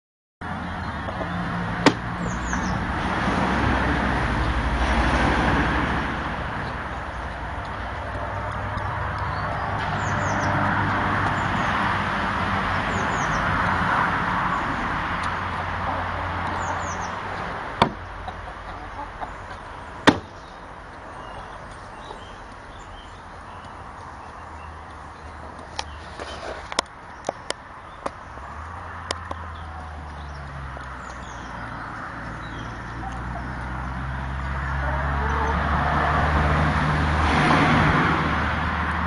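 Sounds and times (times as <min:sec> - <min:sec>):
traffic rush: 0:00.4 - 0:39.0
wooden feeder knocking: 0:01.2 - 0:02.1, 0:17.8 - 0:18.4.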